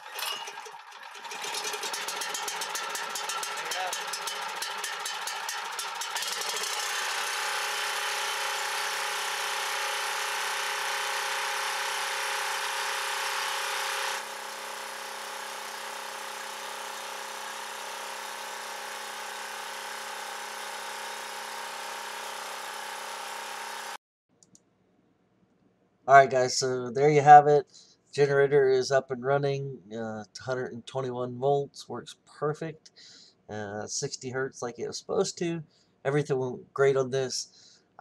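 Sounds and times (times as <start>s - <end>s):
portable generator running: 0.0s - 24.0s.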